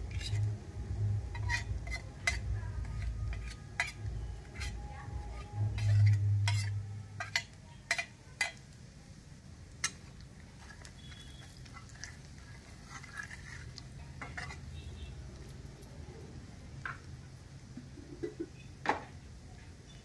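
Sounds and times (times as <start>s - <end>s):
spatula scraping while stirring: 0.0s - 0.6s, 1.2s - 8.7s, 9.8s - 15.1s
low hum: 0.0s - 7.2s
metal clinking against pan: 1.3s - 4.8s, 5.7s - 8.6s.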